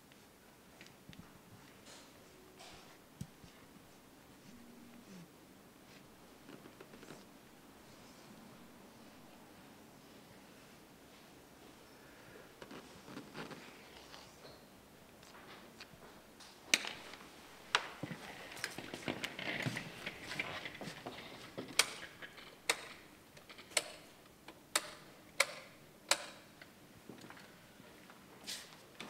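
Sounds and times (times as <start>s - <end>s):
soft rustling: 0.0s - 16.3s, 17.0s - 21.6s
light switches clicking: 24.7s - 26.7s.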